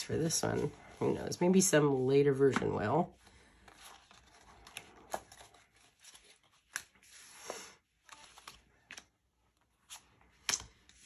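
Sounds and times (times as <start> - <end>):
cards clicking and tapping: 10.3 - 11.0.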